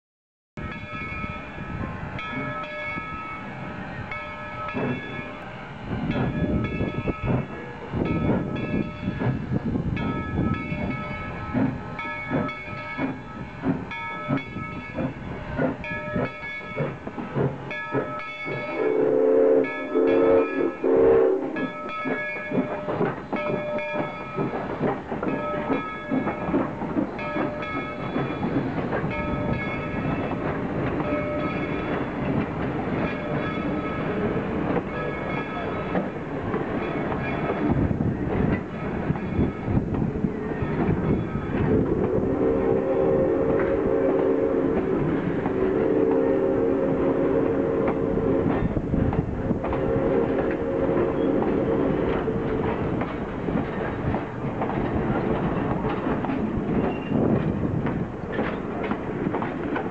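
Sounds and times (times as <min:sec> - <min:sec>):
locomotive bell ringing: 0:00.6 - 0:37.7, 0:38.5 - 0:49.0
steam locomotive chuffing: 0:00.6 - 0:59.9
hissing steam: 0:10.8 - 0:59.9.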